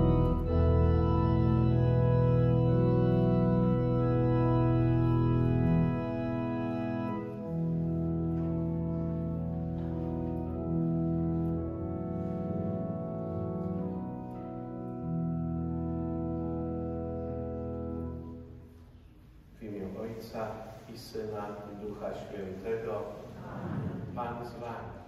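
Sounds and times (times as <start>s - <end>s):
church organ playing carol chords: 0.0s - 19.0s.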